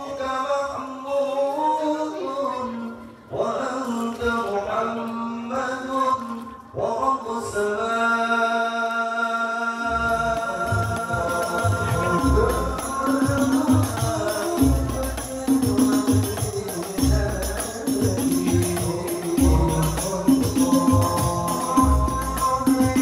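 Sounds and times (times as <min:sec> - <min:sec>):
men singing: 0:00.0 - 0:23.0
frame drums beating: 0:09.9 - 0:23.0.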